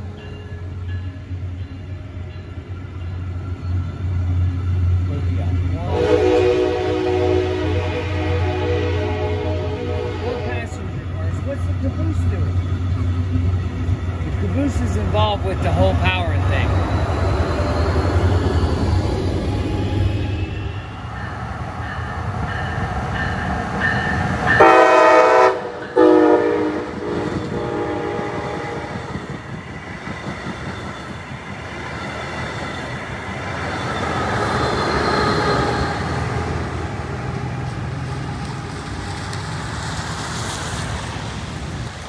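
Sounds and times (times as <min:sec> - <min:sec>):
train wheels rumbling on rails: 0:00.0 - 0:42.0
train horn blasts: 0:05.8 - 0:10.8, 0:24.5 - 0:29.0.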